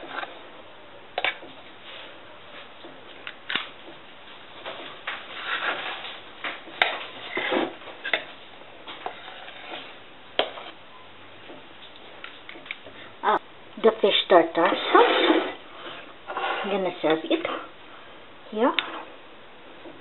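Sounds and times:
metal utensil scraping pot: 0:09.0 - 0:10.8, 0:14.7 - 0:17.6.

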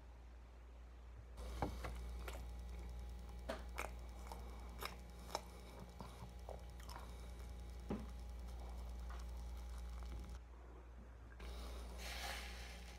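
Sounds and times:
steady low hum: 0:00.0 - 0:12.9
person chewing food: 0:01.4 - 0:10.4.

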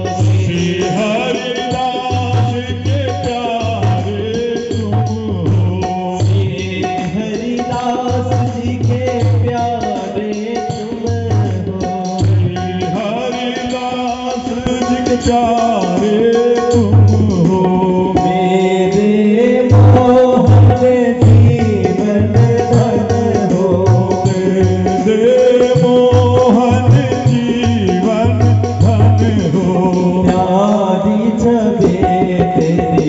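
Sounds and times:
drum beat: 0:00.0 - 0:33.0
instrumental accompaniment: 0:00.0 - 0:33.0
person singing devotional song: 0:00.0 - 0:33.0.

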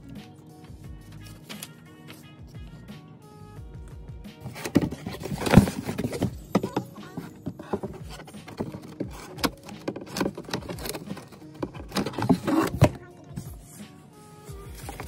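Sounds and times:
packaging rustling and crinkling: 0:04.4 - 0:13.0, 0:14.7 - 0:15.0.

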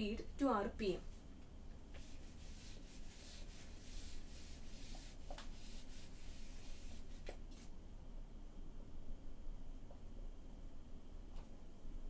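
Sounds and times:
eraser rubbing on whiteboard: 0:02.0 - 0:07.7.

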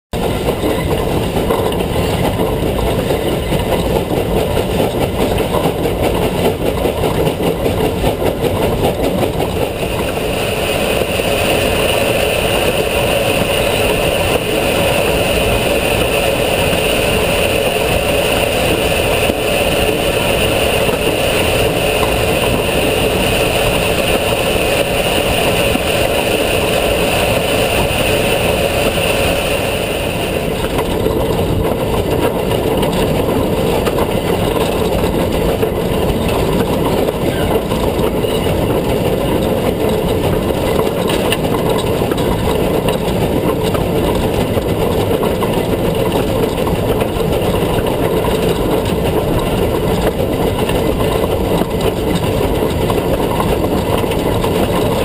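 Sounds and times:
steam locomotive running: 0:00.1 - 0:55.0
high steam hiss: 0:09.7 - 0:30.8.

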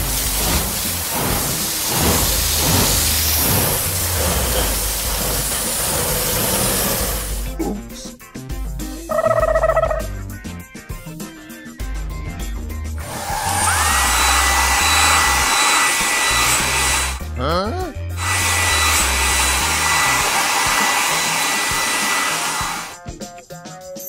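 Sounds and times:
cartoon air dryer blowing: 0:00.0 - 0:07.6, 0:13.0 - 0:23.0
background music with low beat: 0:07.4 - 0:13.0
rising chirps: 0:09.1 - 0:10.1.

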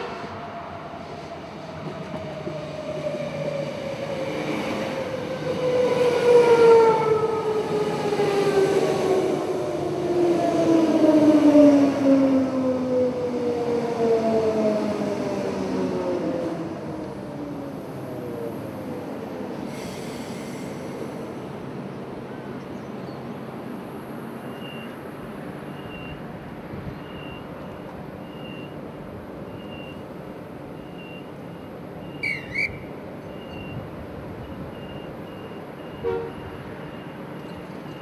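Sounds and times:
air hiss: 0:19.7 - 0:21.4.

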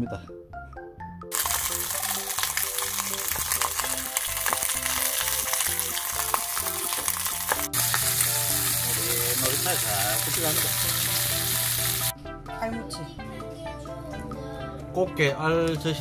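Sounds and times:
simple background music: 0:00.0 - 0:16.0
fish sizzling in oil: 0:01.3 - 0:12.1.

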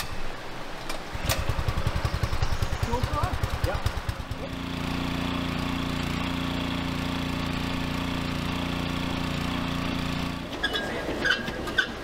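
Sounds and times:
small water pump engine running: 0:01.1 - 0:10.6.

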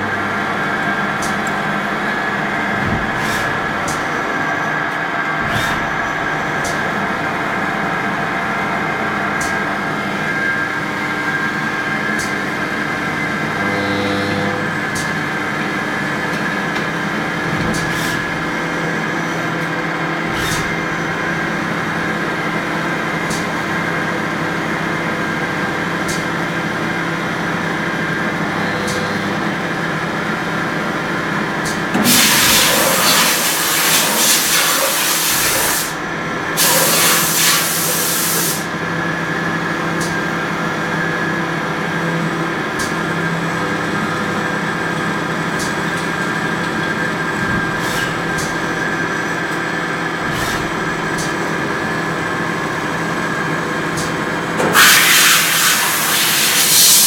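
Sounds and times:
cnc lathe machine hum: 0:00.0 - 0:57.0
loud hissing bursts: 0:32.0 - 0:36.0.

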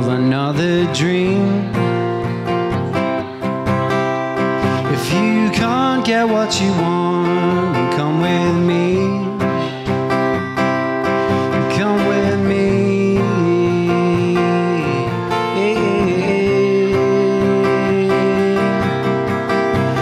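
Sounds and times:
guitar playing: 0:00.0 - 0:20.0
man singing long held notes: 0:04.7 - 0:09.9, 0:11.4 - 0:19.2.

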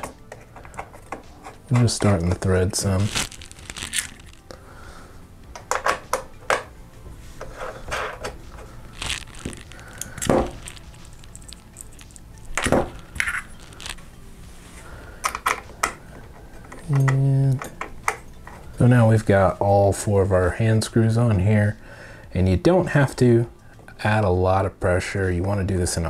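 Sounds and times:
light clicks and scrapes of parts: 0:00.0 - 0:03.3.

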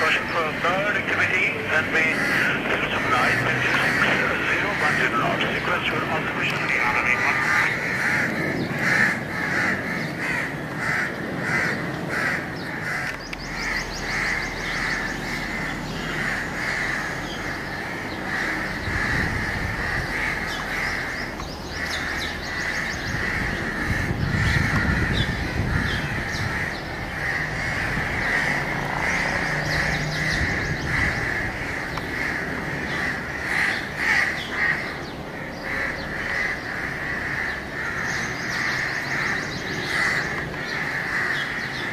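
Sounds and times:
crows cawing: 0:00.0 - 0:41.9.

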